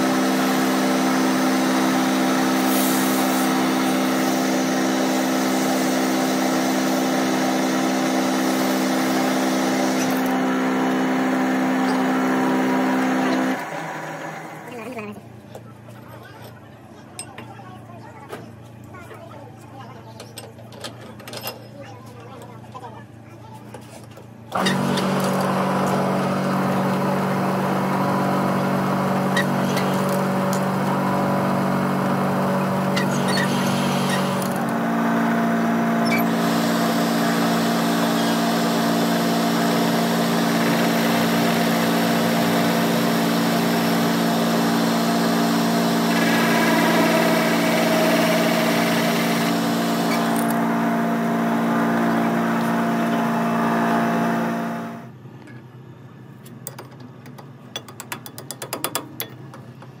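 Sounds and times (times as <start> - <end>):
lathe motor humming: 0.0 - 15.0, 24.5 - 55.1.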